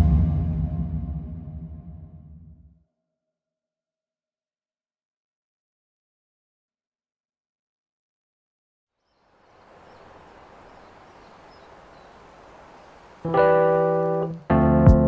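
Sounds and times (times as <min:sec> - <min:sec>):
faint hiss: 0:09.1 - 0:14.6
background music: 0:13.3 - 0:15.0.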